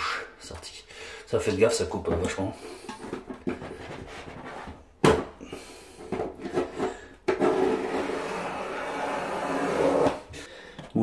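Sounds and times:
utility knife cutting vinyl: 0:07.4 - 0:10.2.

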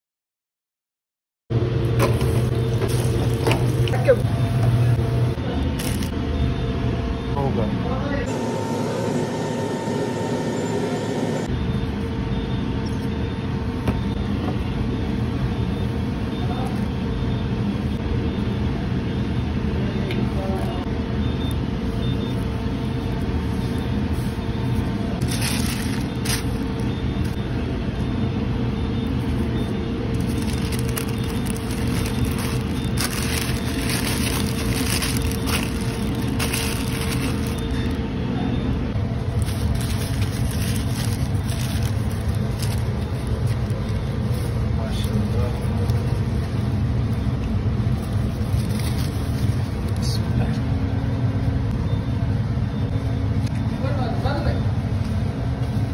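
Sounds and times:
kitchen ventilation hum: 0:01.5 - 0:55.9
wrapping paper crinkling: 0:05.7 - 0:06.2, 0:25.2 - 0:26.9, 0:30.1 - 0:38.0, 0:39.2 - 0:47.2, 0:47.8 - 0:50.1.

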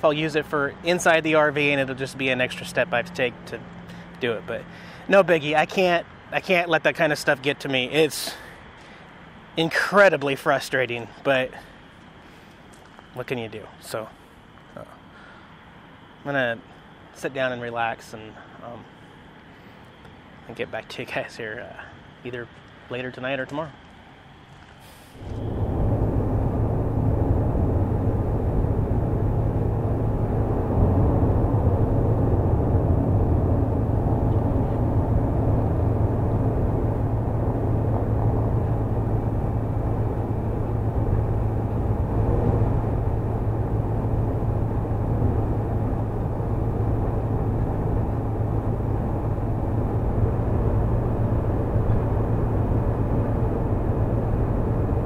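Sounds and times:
low engine drone: 0:00.0 - 0:06.8, 0:24.8 - 0:55.0
tyre and road noise: 0:22.4 - 0:55.0.

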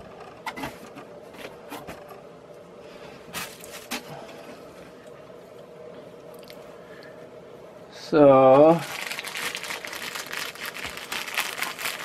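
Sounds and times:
faint hum: 0:00.0 - 0:12.0
cardboard packaging rustling: 0:03.4 - 0:04.2, 0:08.8 - 0:12.0.

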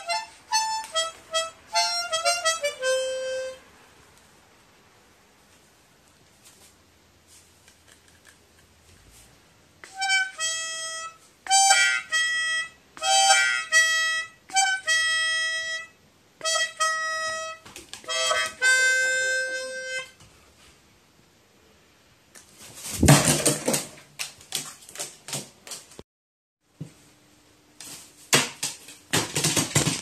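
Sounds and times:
harmonica tune: 0:00.0 - 0:03.7, 0:09.8 - 0:20.2.

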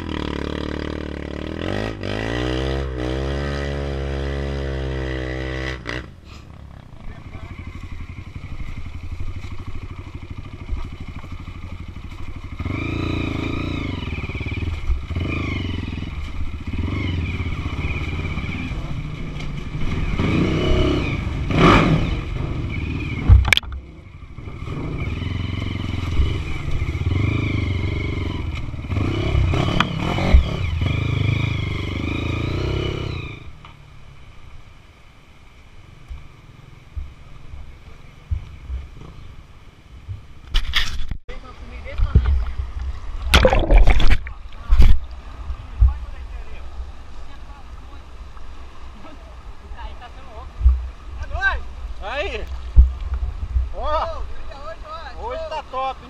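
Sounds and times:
motorbike engine revving: 0:00.0 - 0:33.5.

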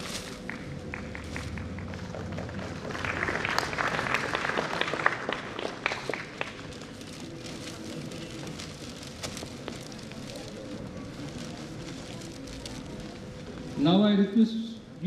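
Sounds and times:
audience applauding: 0:00.3 - 0:07.1.

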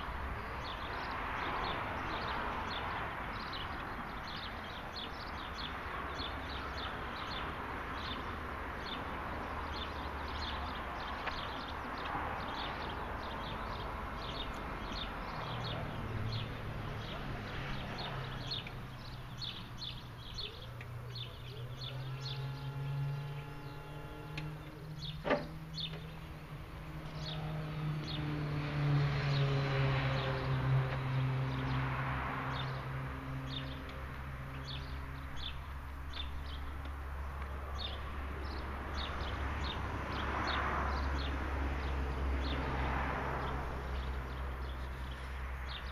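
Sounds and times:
birds chirping: 0:00.0 - 0:45.9
hydraulic power unit humming: 0:21.9 - 0:26.4.

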